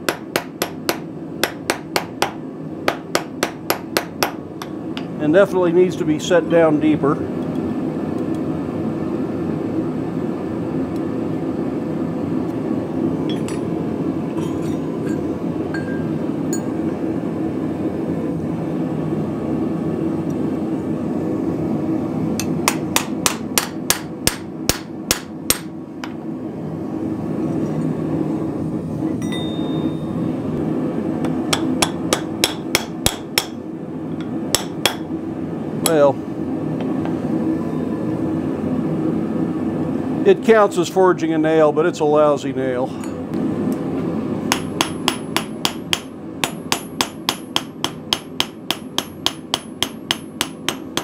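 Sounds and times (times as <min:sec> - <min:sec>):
hammer striking hot iron on anvil: 0:00.0 - 0:05.2, 0:13.3 - 0:16.8, 0:22.4 - 0:26.2, 0:31.2 - 0:33.6, 0:34.2 - 0:35.1, 0:44.5 - 0:51.0.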